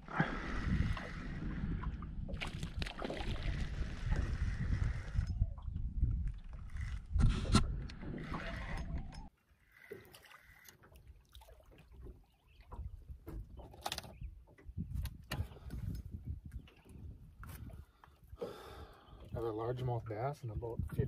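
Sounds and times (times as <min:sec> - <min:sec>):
wind on microphone: 0:00.0 - 0:09.3, 0:12.7 - 0:17.9, 0:20.4 - 0:21.0.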